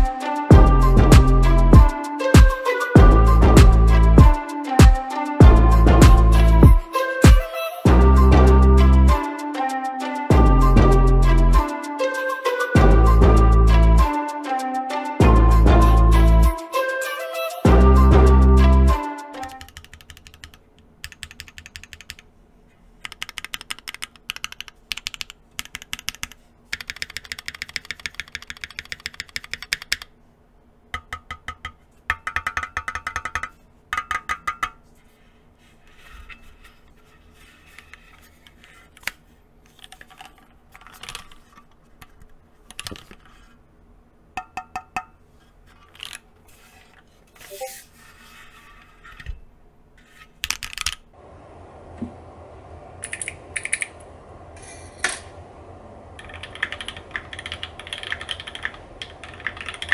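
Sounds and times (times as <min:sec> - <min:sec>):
mechanical keyboard keys clacking: 0:19.4 - 0:22.2, 0:23.0 - 0:30.1, 0:53.0 - 0:53.9, 0:56.2 - 0:59.9.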